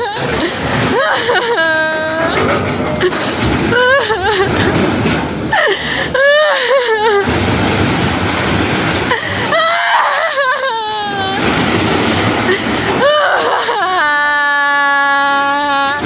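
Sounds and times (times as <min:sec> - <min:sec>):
woman wailing and sobbing: 0:00.0 - 0:02.4, 0:03.0 - 0:04.8, 0:05.5 - 0:07.3, 0:09.1 - 0:11.4, 0:12.5 - 0:16.0
steady background noise: 0:00.0 - 0:16.0.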